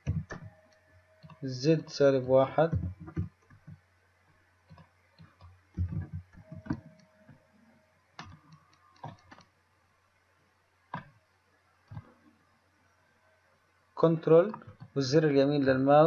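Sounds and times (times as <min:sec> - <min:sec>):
keyboard keys and mouse clicking: 0:00.0 - 0:01.4, 0:02.6 - 0:03.8, 0:04.7 - 0:07.4, 0:08.2 - 0:09.5.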